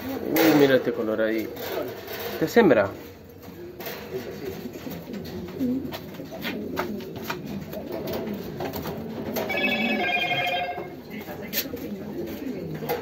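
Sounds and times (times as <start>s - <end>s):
pigeons cooing: 0.0s - 13.0s
high-pitched ringing tone: 9.5s - 10.9s.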